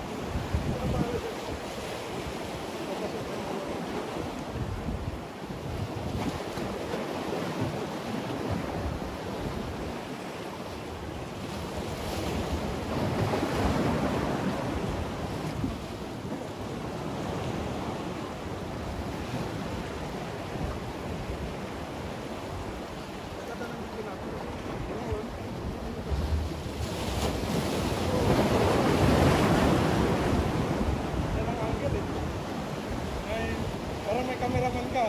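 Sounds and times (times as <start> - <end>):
wind buffeting microphone: 0.0 - 2.6, 4.1 - 10.1, 11.0 - 34.8
waves breaking on concrete: 19.1 - 35.0.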